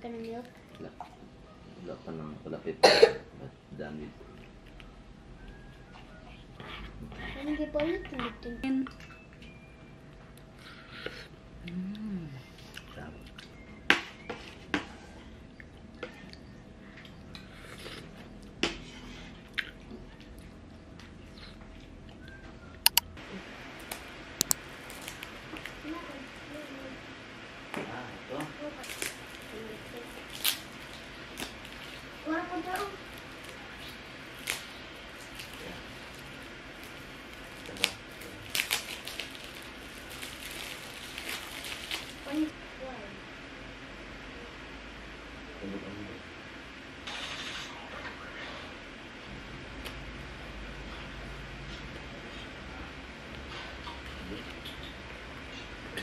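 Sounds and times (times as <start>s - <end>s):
soft eating sounds: 0.0s - 2.7s, 3.4s - 13.6s, 14.2s - 42.6s, 47.1s - 56.0s
plastic shrink-wrap crackling: 23.8s - 26.8s, 28.3s - 42.5s.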